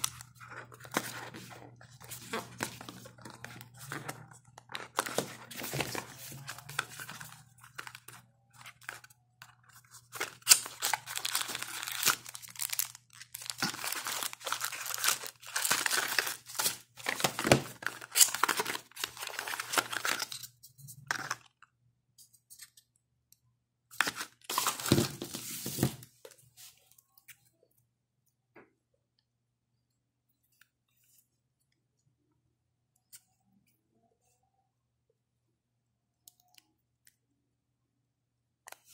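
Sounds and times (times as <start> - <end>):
packaging rustling and crinkling: 0.0 - 9.1, 9.7 - 20.5, 24.0 - 26.1.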